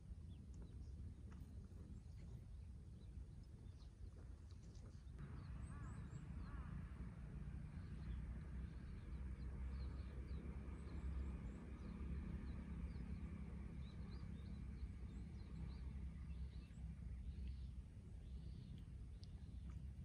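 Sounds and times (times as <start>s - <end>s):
wind rumbling on microphone: 0.0s - 5.8s
small birds chirping: 7.7s - 20.0s.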